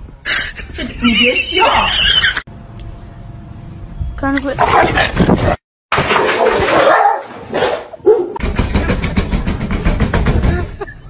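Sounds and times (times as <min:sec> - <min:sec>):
dog barking: 0:06.8 - 0:08.4.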